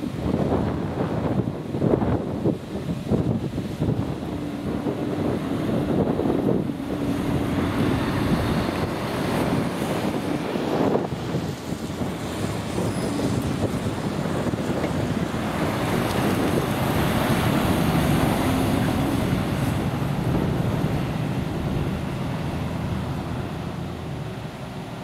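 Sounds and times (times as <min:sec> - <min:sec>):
wind buffeting microphone: 0:00.0 - 0:25.0
truck diesel engine passing: 0:02.9 - 0:25.0.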